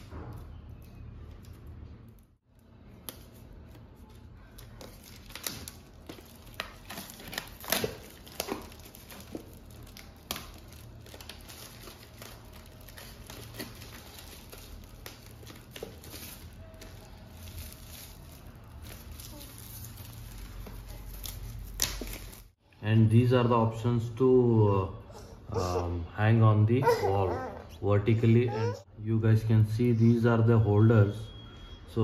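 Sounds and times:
plastic wrapping crinkling: 0.7 - 22.6.

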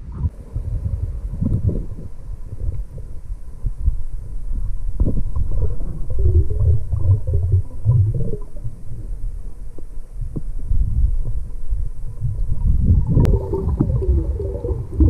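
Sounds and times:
underwater low rumble: 0.0 - 15.0
air bubbles gurgling: 5.0 - 9.2, 12.2 - 15.0.

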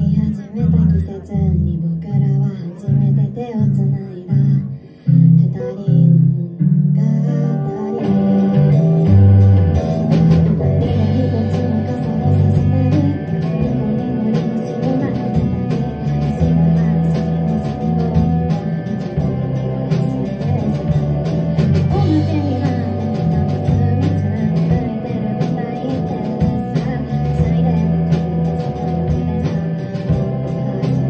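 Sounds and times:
bass guitar: 0.0 - 31.0
electric guitar: 0.0 - 31.0
person singing: 0.0 - 31.0
drum kit: 7.6 - 31.0.

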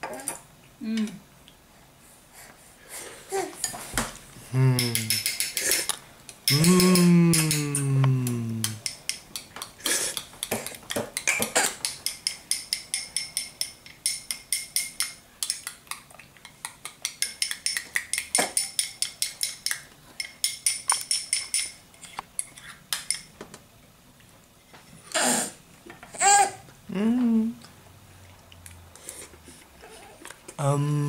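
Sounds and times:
spoon clinking against ceramic bowl: 4.8 - 7.6, 11.8 - 15.7, 17.0 - 21.8.

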